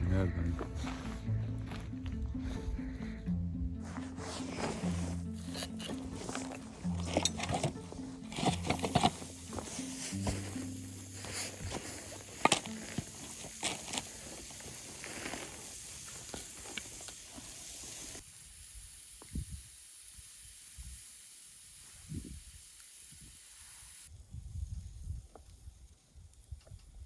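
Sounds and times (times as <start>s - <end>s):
food sizzling in a pan: 8.5s - 25.8s.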